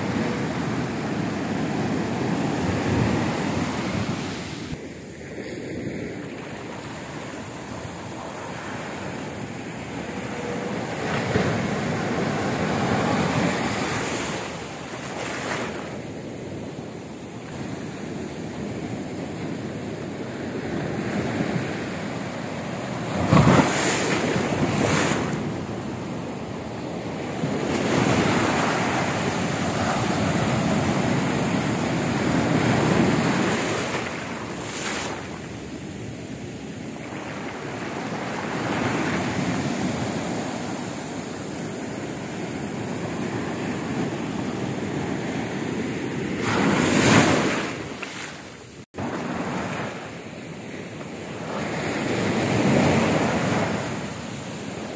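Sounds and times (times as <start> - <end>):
wind buffeting microphone: 0.0 - 14.8
waves breaking on sand: 0.0 - 54.9.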